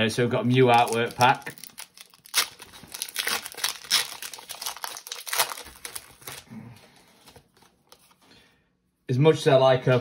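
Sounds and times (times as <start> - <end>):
foil wrapper crinkling: 0.4 - 6.5.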